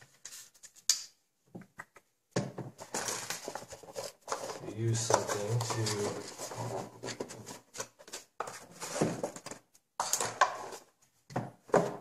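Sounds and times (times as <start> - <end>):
plastic pack scraping and knocking: 2.4 - 12.0
cardboard box rustling: 2.8 - 9.6.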